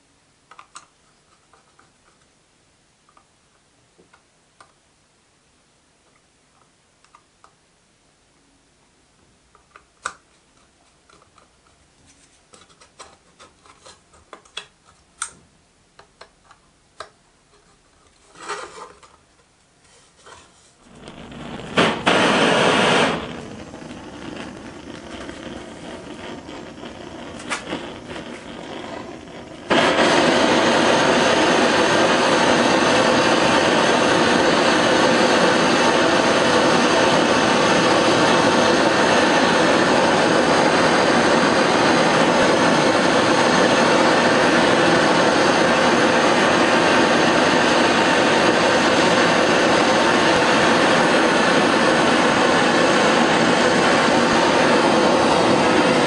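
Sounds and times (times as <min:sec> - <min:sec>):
blowtorch hissing: 0:20.8 - 0:56.0.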